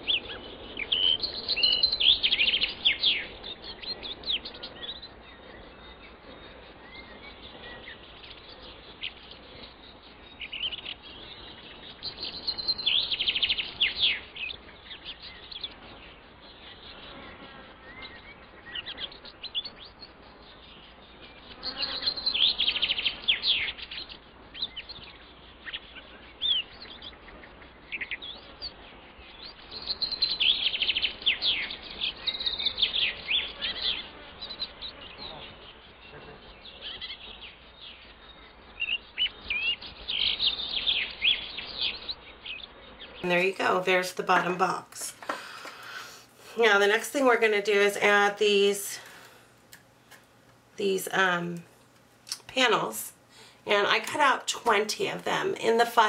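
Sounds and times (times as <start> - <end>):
birds chirping: 0.0 - 56.0
faint steady hiss: 0.0 - 56.0.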